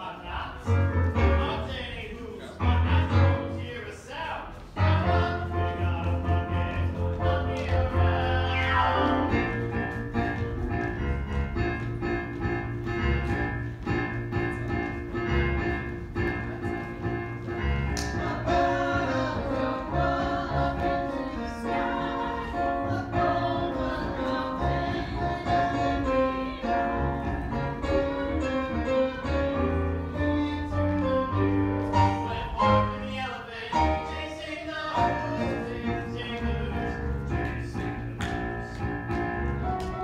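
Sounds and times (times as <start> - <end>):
piano accompaniment: 0.0 - 40.0
group of voices singing: 4.8 - 9.5, 18.0 - 31.2.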